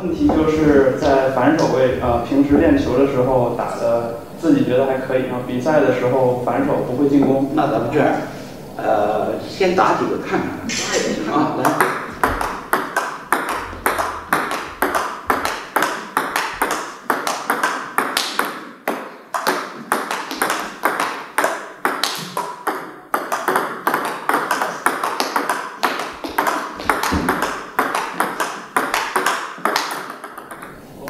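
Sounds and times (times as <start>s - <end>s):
ping-pong ball bouncing on table: 11.6s - 30.8s
ping-pong ball clicking off paddles: 11.6s - 30.8s.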